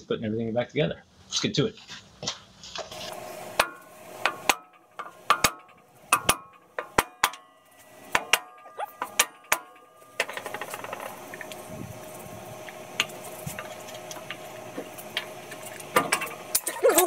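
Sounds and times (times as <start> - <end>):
hammer striking metal drum: 3.6 - 11.2.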